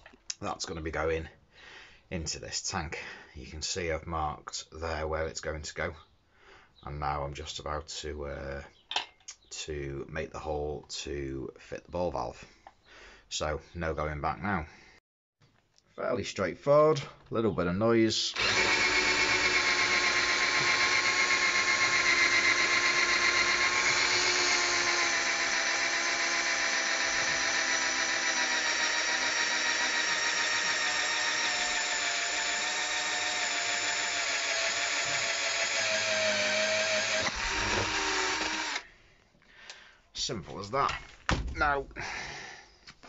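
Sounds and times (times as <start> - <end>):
cordless drill cutting plastic: 18.3 - 38.9.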